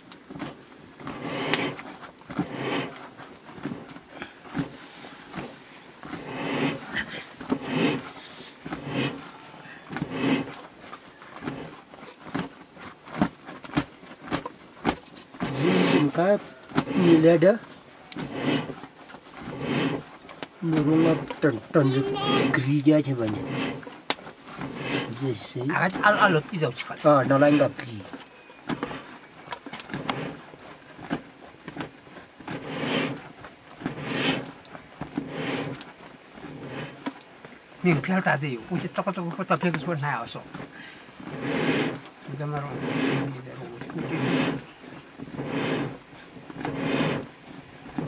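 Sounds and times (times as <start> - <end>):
wood fire crackling and popping: 0.0 - 48.0
person speaking: 20.6 - 23.8, 24.8 - 28.2.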